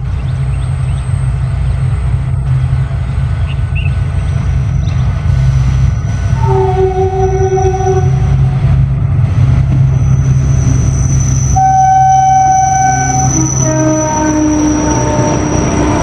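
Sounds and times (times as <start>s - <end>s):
diesel locomotive engine rumble: 0.0s - 16.0s
squealing tones: 5.9s - 8.4s, 9.8s - 16.0s.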